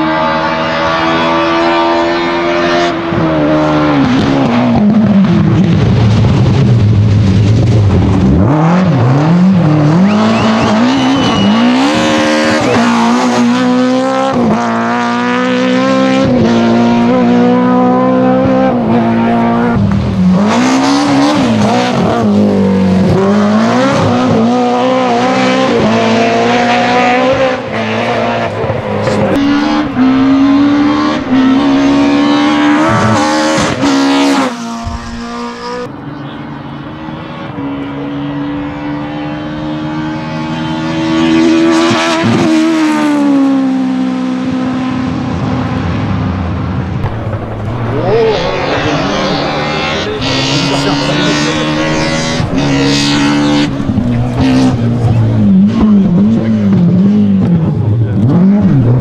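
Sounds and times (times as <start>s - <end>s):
rally car engines revving: 0.0s - 59.0s
tyres squealing and skidding: 9.9s - 13.8s, 47.7s - 56.4s.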